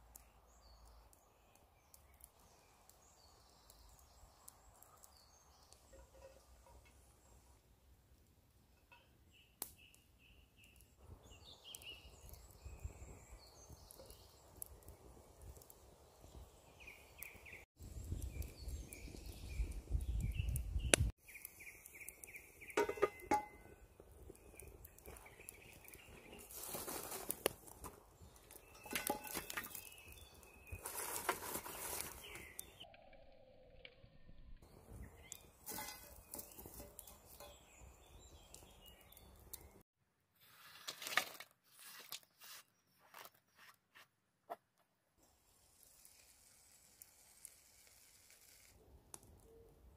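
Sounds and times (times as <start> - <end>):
small birds chirping: 0.0 - 7.6, 9.0 - 39.9
campfire crackling: 0.0 - 32.9, 34.6 - 39.8, 45.2 - 49.9
cookware knocking and scraping: 22.8 - 23.6.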